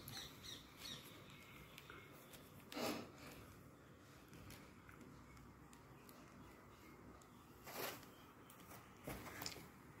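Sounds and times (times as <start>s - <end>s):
faint plastic wrapping crinkling: 0.0s - 9.8s.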